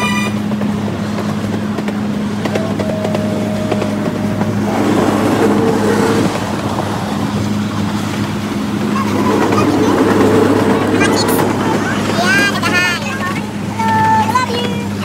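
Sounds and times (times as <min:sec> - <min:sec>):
small engine droning: 0:00.0 - 0:15.0.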